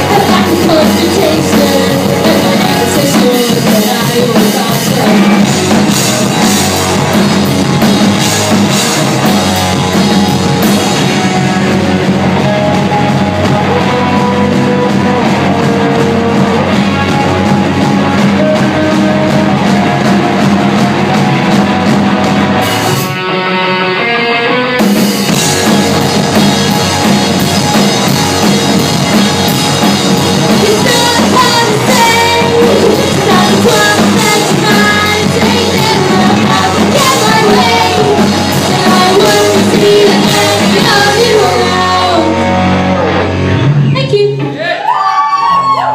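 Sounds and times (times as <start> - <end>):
woman singing: 0.0 - 5.5, 30.6 - 42.5
live rock band playing: 0.0 - 45.9.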